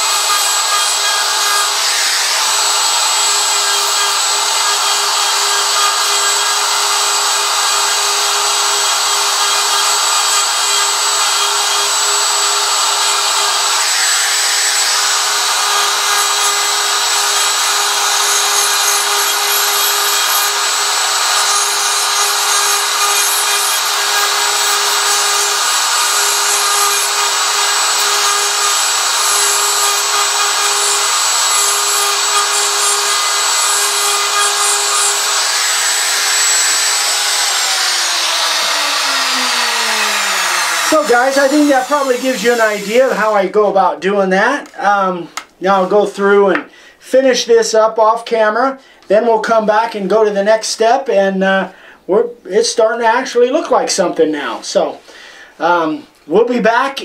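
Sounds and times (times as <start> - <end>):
router whining: 0.0 - 43.6
router bit cutting wood: 0.0 - 46.7.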